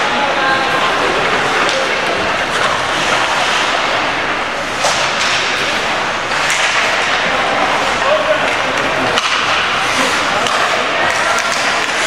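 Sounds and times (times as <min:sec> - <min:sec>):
crowd noise: 0:00.0 - 0:12.0
skating on ice: 0:02.5 - 0:04.0, 0:04.8 - 0:12.0
stick hitting puck: 0:04.8 - 0:05.6, 0:06.3 - 0:12.0.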